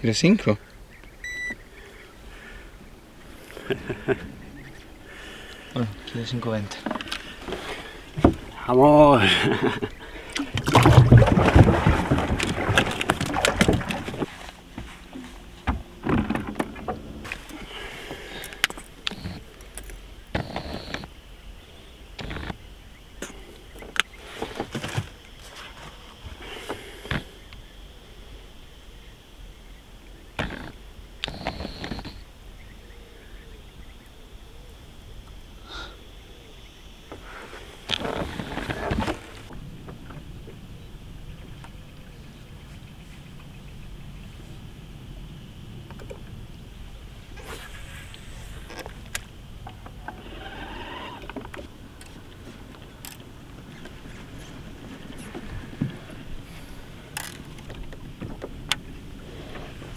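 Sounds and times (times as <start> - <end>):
water noise: 0.0 - 33.2, 34.1 - 59.9
low wind: 0.0 - 59.9
knocks and clatter on a boat: 6.6 - 8.6, 10.4 - 17.5, 37.9 - 40.6, 45.8 - 46.4, 51.2 - 59.9
rough rustling noise: 10.1 - 19.6, 37.2 - 40.4, 50.0 - 59.9.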